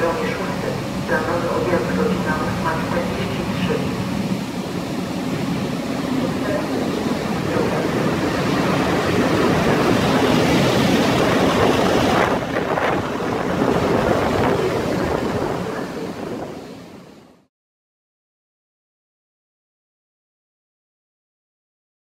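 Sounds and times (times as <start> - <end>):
electric locomotive passing: 0.0 - 17.3
wind on microphone: 3.7 - 17.2.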